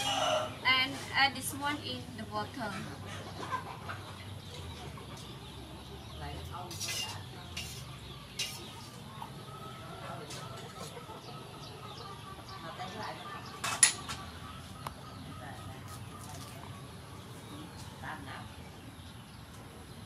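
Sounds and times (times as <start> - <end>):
chickens clucking: 0.0 - 20.0
metal dishes clinking: 6.7 - 8.8, 13.6 - 14.2.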